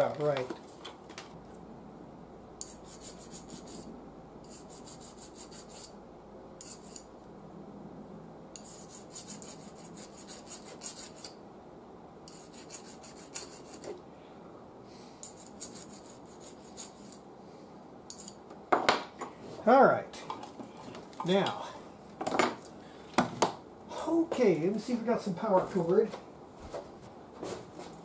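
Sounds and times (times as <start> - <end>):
rasping scraping strokes: 2.6 - 6.0, 6.6 - 7.1, 8.6 - 11.4, 12.3 - 14.0, 15.2 - 17.2.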